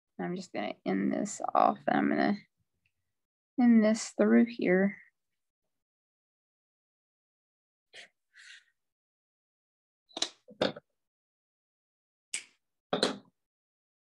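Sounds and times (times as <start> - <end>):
objects set down on tabletop: 10.5 - 10.8, 13.0 - 13.3.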